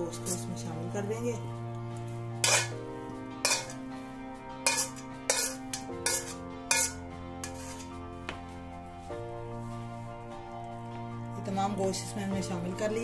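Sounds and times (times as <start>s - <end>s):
background music: 0.0s - 13.0s
spatula knocking on metal pot: 2.4s - 2.7s, 3.5s - 3.8s, 4.7s - 7.0s.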